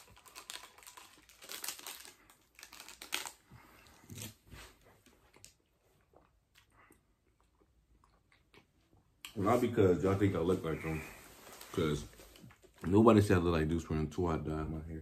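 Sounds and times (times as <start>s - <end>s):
rustling and crinkling: 9.3s - 13.0s.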